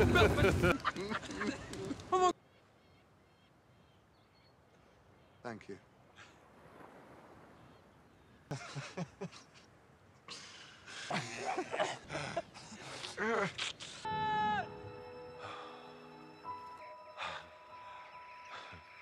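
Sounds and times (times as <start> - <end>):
men laughing: 0.0 - 2.4, 8.5 - 9.7, 10.4 - 14.5
faint high bird calls: 2.3 - 6.4, 14.0 - 19.0.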